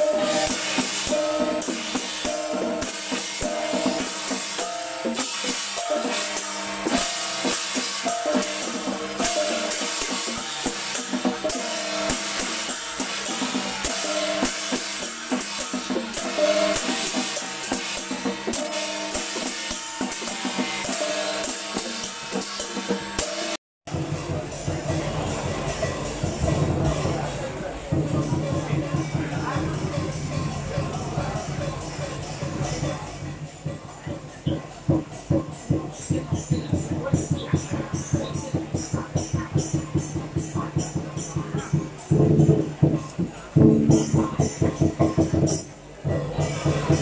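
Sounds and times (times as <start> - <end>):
music with busy drum beat: 0.0 - 47.0.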